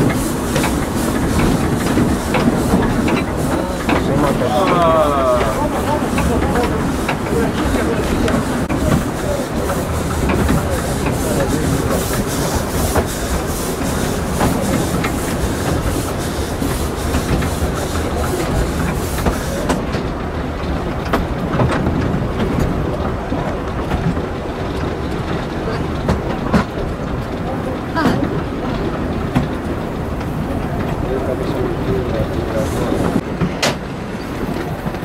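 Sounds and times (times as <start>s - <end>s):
rhythmic steam exhaust hissing: 0.0s - 20.0s, 27.2s - 33.2s
rail clatter with wheel clicks: 0.0s - 35.0s.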